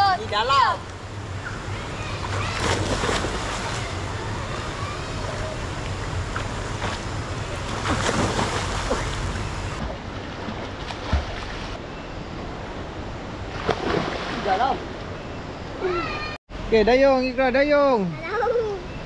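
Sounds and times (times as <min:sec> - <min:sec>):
splash into water: 0:02.3 - 0:03.9, 0:07.6 - 0:11.8, 0:13.5 - 0:14.9.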